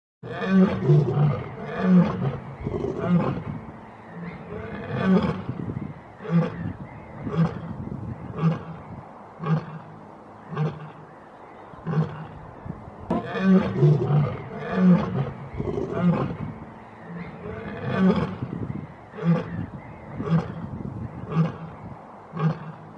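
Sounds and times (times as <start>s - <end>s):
lioness roaring and grunting: 0.2s - 3.6s, 4.2s - 5.5s, 13.1s - 16.4s, 17.1s - 18.5s.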